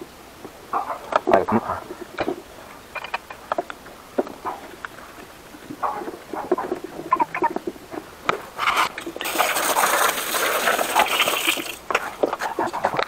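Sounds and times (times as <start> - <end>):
knocks and clatters: 1.9 - 9.2
rushing water: 9.0 - 11.9.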